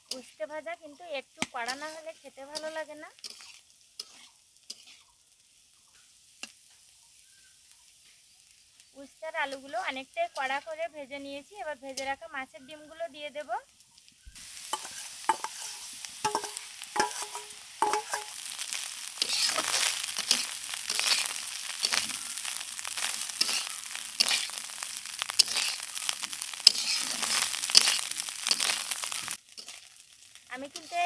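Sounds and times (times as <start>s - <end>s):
vegetables sizzling in oil: 0.0s - 31.0s
metal spatula scraping in pan: 1.0s - 5.2s, 14.4s - 31.0s.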